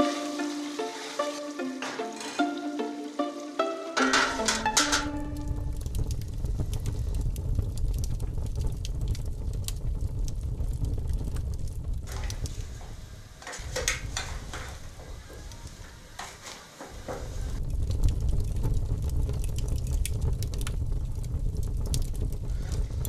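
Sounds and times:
faint crackles and clicks: 4.0 - 23.0
low rumble: 4.2 - 13.3, 17.6 - 23.0.

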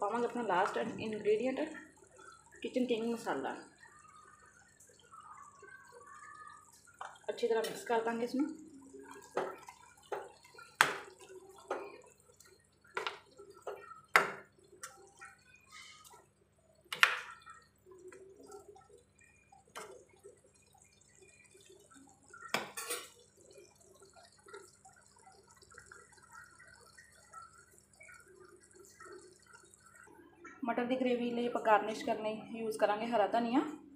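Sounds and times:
gravy bubbling: 0.0 - 33.9
spoon knocking metal pot: 13.0 - 15.0, 22.5 - 23.2.

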